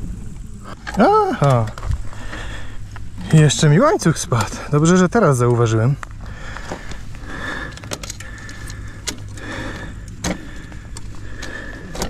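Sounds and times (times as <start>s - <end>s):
bicycle chain clicks and rattles: 0.0s - 12.0s.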